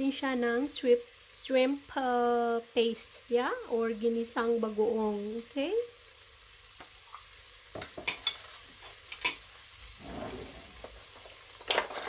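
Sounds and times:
meat sauteing in a pot: 0.0s - 12.0s.

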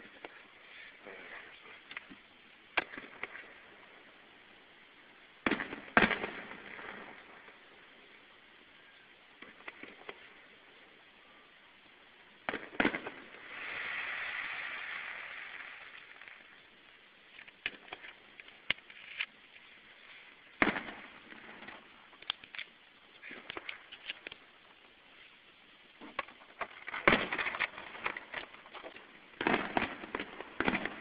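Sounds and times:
fireworks bangs: 0.0s - 4.2s, 5.4s - 8.3s, 9.3s - 11.0s, 12.4s - 18.8s, 19.9s - 22.6s, 23.2s - 24.9s, 25.9s - 31.0s
fireworks hiss: 0.0s - 31.0s
fireworks pops: 1.0s - 4.0s, 5.4s - 7.7s, 9.4s - 10.5s, 12.4s - 25.3s, 25.9s - 31.0s.

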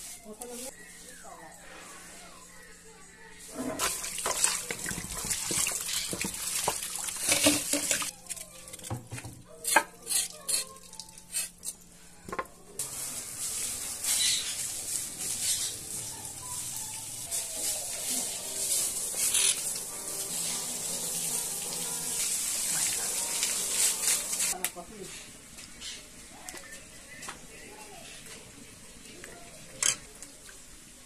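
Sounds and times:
broom sweeping floor: 0.0s - 2.4s, 12.8s - 25.8s
water spraying from hose: 12.8s - 24.6s.

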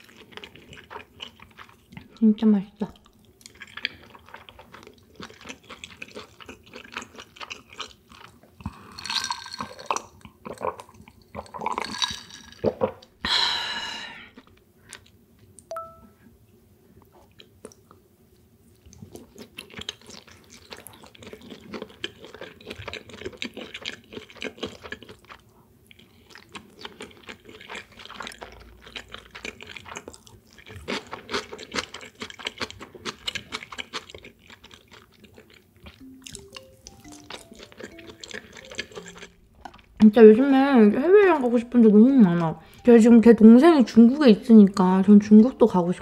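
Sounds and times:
mouth chewing wet crunches: 0.0s - 2.2s, 2.8s - 13.1s, 17.2s - 18.0s, 18.7s - 40.1s.

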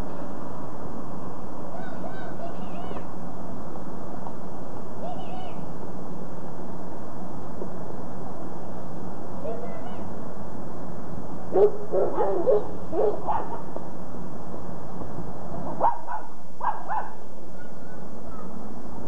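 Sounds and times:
steady background hiss: 0.0s - 19.0s
dog yipping and barking: 11.6s - 13.6s, 15.8s - 17.2s.

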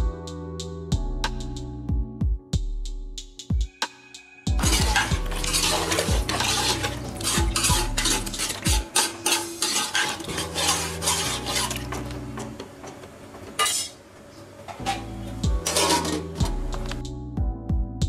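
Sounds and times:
metal ladle scraping a pot: 4.6s - 12.6s, 13.6s - 14.0s, 14.8s - 17.0s.

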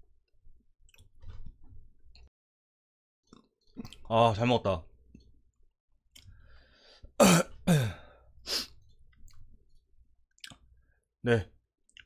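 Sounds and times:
man clearing his throat: 7.2s - 8.1s
man coughing: 7.2s - 8.1s.

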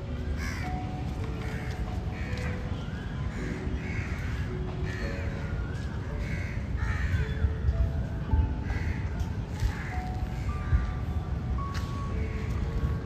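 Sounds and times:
crows cawing: 0.4s - 0.8s, 1.4s - 2.6s, 3.3s - 5.6s, 6.2s - 7.4s, 8.6s - 10.9s.

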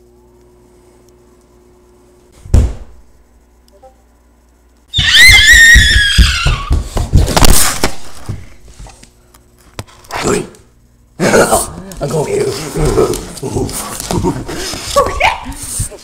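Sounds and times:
loud thump: 2.4s - 3.1s
high-pitched descending cry: 4.9s - 6.8s
knocks and scuffles on wooden floor: 5.9s - 9.0s.

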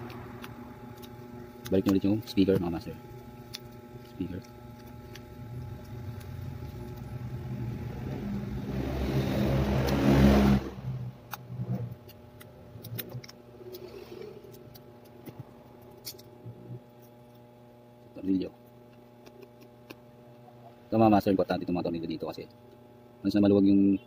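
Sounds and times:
motor vehicle engine: 5.4s - 14.5s.

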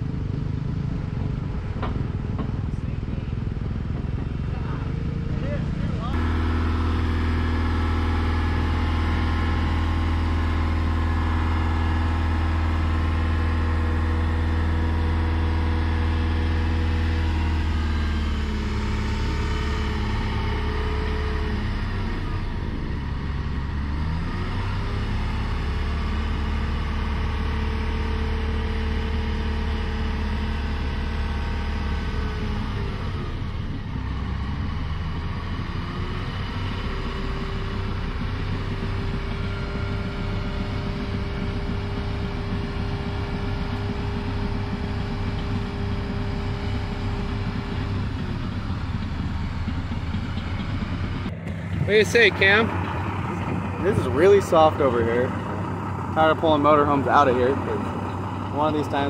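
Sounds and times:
motorhome engine running under load: 0.0s - 59.0s.

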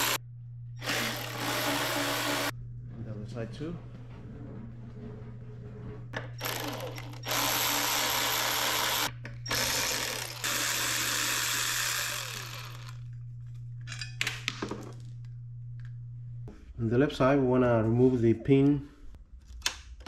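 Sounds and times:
cordless power driver running: 0.0s - 0.2s, 0.8s - 2.5s, 6.4s - 13.1s.

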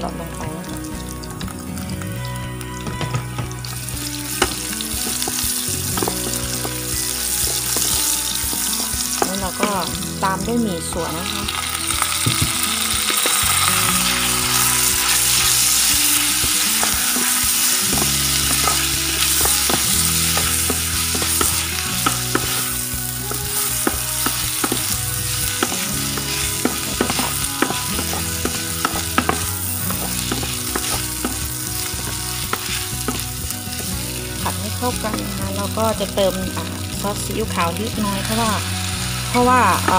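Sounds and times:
food sizzling in hot oil: 0.0s - 39.9s
spatula tapping and scraping pan: 16.6s - 33.4s.

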